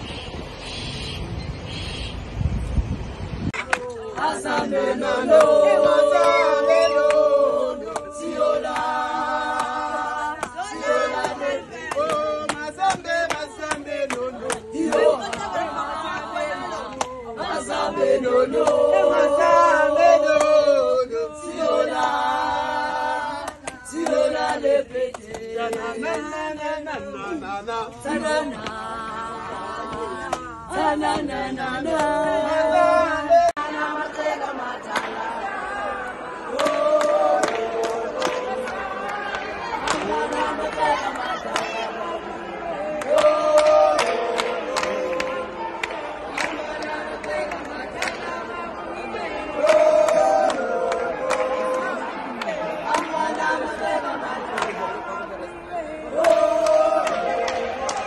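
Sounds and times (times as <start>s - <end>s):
handclaps: 3.6s - 6.4s, 7.9s - 17.6s, 18.5s - 19.0s, 20.3s - 20.6s, 23.4s - 26.4s, 28.2s - 32.2s, 34.9s - 35.3s, 36.5s - 41.8s, 43.0s - 48.5s, 49.6s - 54.8s, 56.2s - 58.0s
group singing in harmony: 3.6s - 58.0s.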